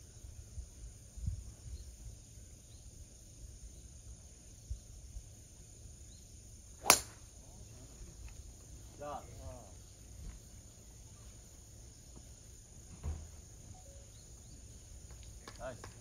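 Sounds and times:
golf club striking ball: 0:06.8 - 0:07.2
faint high chirps: 0:13.0 - 0:15.4.

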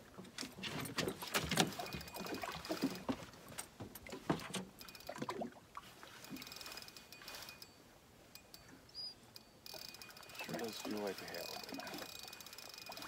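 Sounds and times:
knocks and clicks from boat: 0:00.0 - 0:05.4
water slapping against hull: 0:00.0 - 0:06.4.

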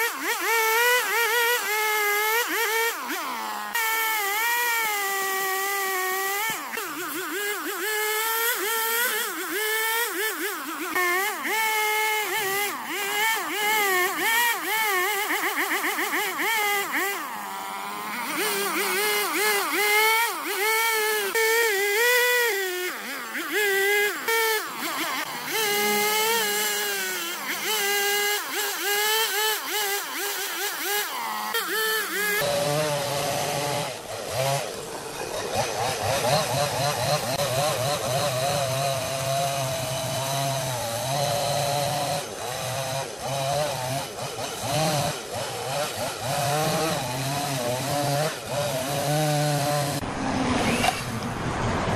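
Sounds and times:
chainsaw cutting wood: 0:00.0 - 0:51.9.

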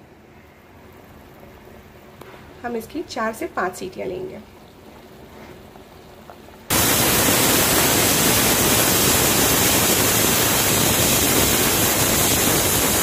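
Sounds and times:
pressure cooker whistle hissing: 0:06.7 - 0:13.0.

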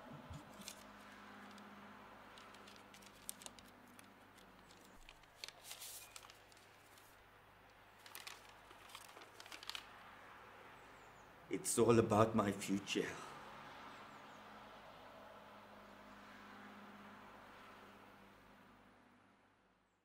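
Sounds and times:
paper rustling and crinkling: 0:00.3 - 0:01.7, 0:02.3 - 0:07.2, 0:08.0 - 0:10.0.

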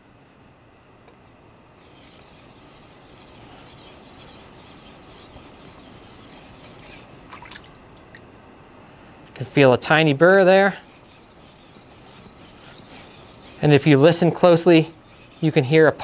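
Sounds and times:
knife rubbing on whetstone: 0:01.8 - 0:07.1, 0:10.6 - 0:16.0.

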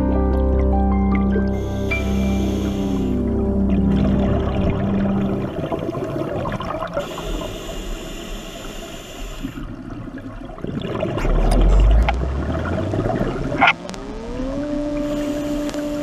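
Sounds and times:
bubbling rumble: 0:00.6 - 0:07.1, 0:09.6 - 0:16.0
underwater bubbles gurgling: 0:00.6 - 0:16.0
steady high hiss: 0:01.6 - 0:03.3.

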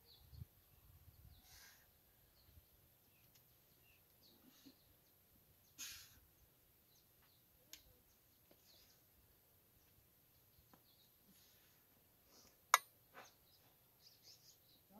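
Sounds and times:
faint ticks and scrapes: 0:07.2 - 0:09.1.

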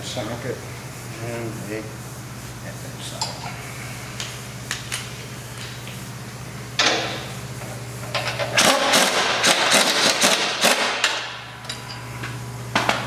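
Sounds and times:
pneumatic impact wrench hammering: 0:06.8 - 0:07.3, 0:08.0 - 0:12.0.

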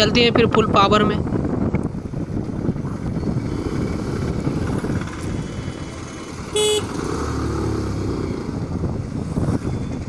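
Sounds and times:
wind rumble on microphone: 0:00.0 - 0:10.0
motorcycle engine running: 0:01.8 - 0:10.0
short horn beep: 0:06.5 - 0:06.9.

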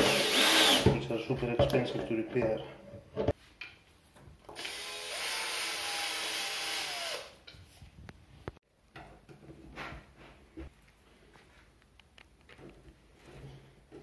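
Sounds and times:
drill motor spinning: 0:00.0 - 0:00.8, 0:04.6 - 0:07.4.

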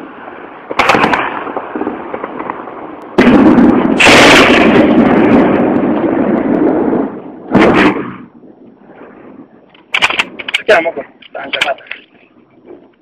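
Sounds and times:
gunfire and blasts: 0:00.6 - 0:08.4, 0:09.9 - 0:10.9.

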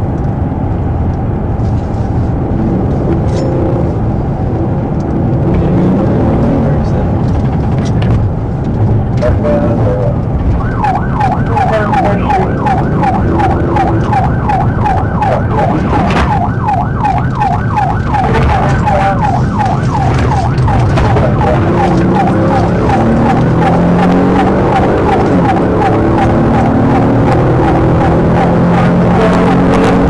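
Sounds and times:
car engine and road noise: 0:00.0 - 0:30.0
police siren yelping: 0:09.3 - 0:30.0.

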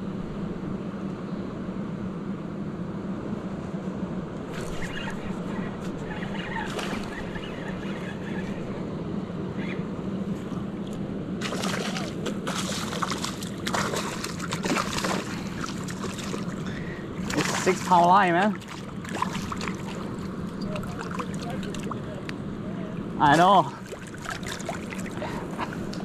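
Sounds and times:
low hum: 0:00.0 - 0:26.0
water rushing: 0:10.6 - 0:26.0
splashing and clicks: 0:10.8 - 0:22.4, 0:23.8 - 0:26.0.

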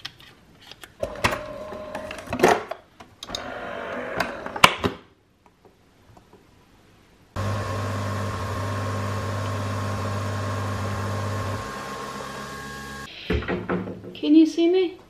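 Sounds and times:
coffee machine humming: 0:07.4 - 0:13.1.

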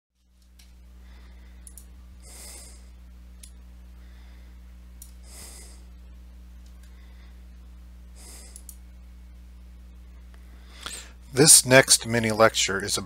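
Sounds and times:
low electrical hum: 0:00.2 - 0:13.0
person breathing: 0:00.9 - 0:03.0, 0:03.9 - 0:06.0, 0:06.8 - 0:08.8, 0:10.4 - 0:11.3
faint clicks: 0:01.6 - 0:01.9, 0:08.5 - 0:08.8.

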